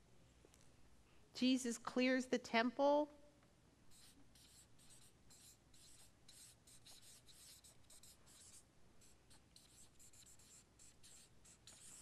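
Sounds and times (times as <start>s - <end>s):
marker writing on paper: 3.9s - 12.0s.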